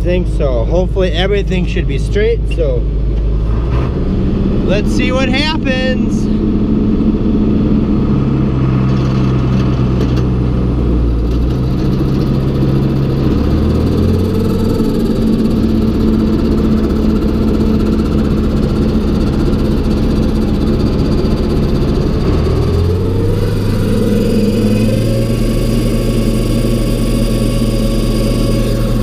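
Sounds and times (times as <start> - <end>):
tractor engine running: 0.0 - 29.0
hay grinder running: 4.5 - 29.0.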